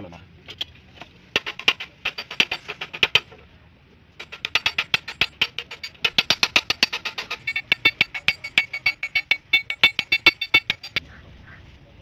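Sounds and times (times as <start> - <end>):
hammer striking chisel on metal: 1.4 - 3.3, 4.2 - 11.0.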